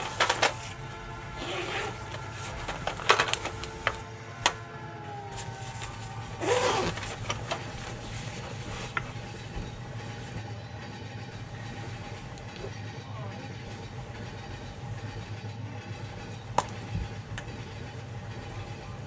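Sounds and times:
fabric case rustling: 0:00.0 - 0:04.6, 0:05.3 - 0:10.4
train carriage rumble: 0:00.0 - 0:19.0
pens clicking in case: 0:01.6 - 0:04.6.

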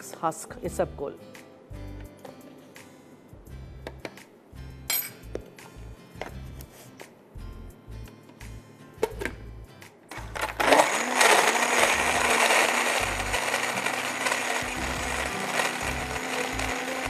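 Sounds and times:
blender motor running: 0:10.1 - 0:17.0.

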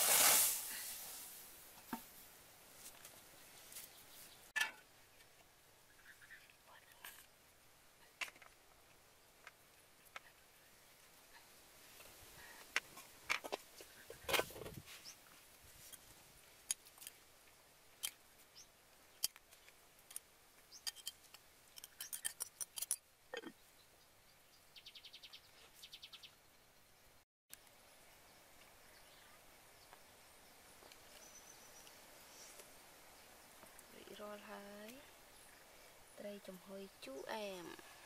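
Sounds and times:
dishes and utensils clicking: 0:21.8 - 0:23.0.

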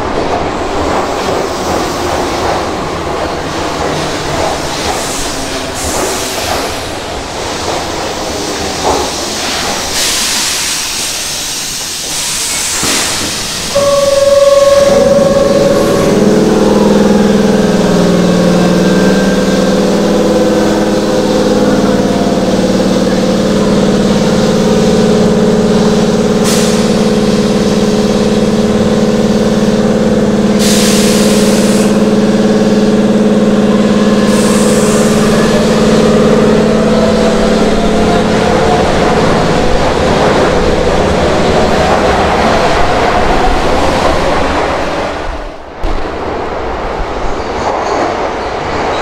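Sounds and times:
train equipment humming: 0:00.0 - 0:48.8
short air hisses: 0:09.9 - 0:13.7
faint rising tone: 0:13.8 - 0:19.6.

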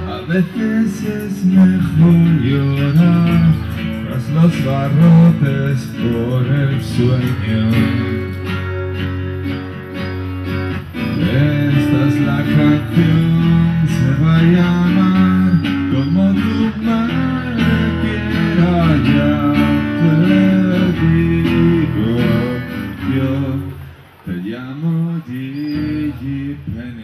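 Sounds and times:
man singing: 0:00.0 - 0:08.5, 0:11.0 - 0:27.0
acoustic guitar strummed: 0:00.0 - 0:27.0.

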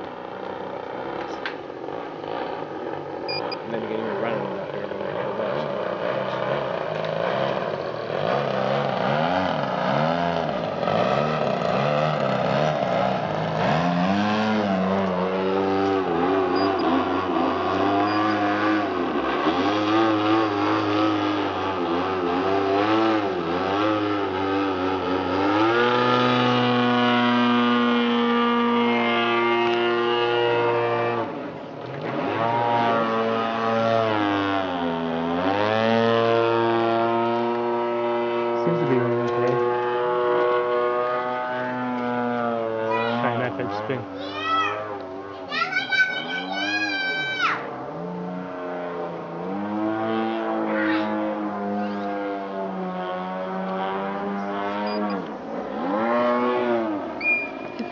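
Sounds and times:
model plane engine in flight: 0:00.0 - 0:57.9.

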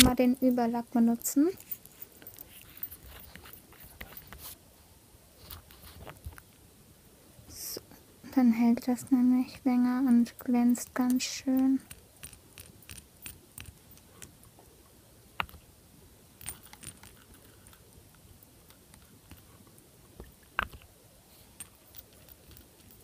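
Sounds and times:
small clicks and taps: 0:10.4 - 0:14.6, 0:15.4 - 0:15.6, 0:20.2 - 0:20.9.

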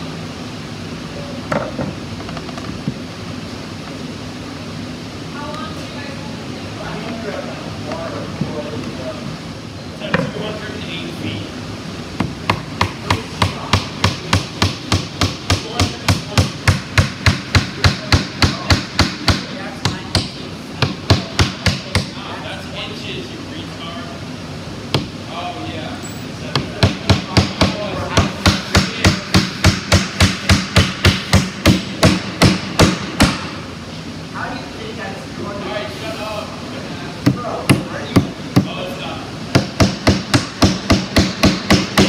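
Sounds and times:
hammer driving nail into wood: 0:26.6 - 0:33.6, 0:39.5 - 0:42.0.

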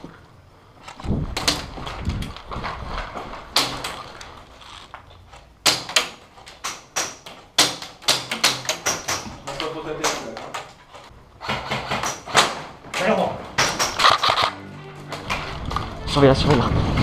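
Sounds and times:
knocking and rustling of movement: 0:00.0 - 0:14.4
airsoft guns firing: 0:11.4 - 0:14.6.

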